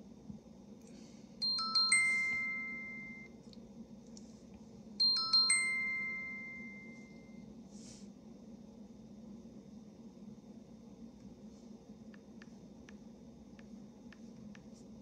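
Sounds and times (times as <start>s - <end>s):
phone message alert chime: 1.4s - 3.3s, 5.0s - 7.3s.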